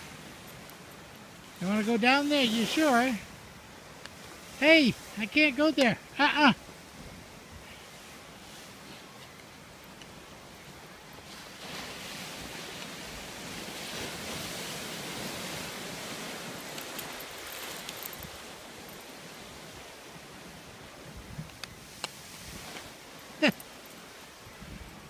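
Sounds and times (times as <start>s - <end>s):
waves washing on shore: 0.0s - 25.0s.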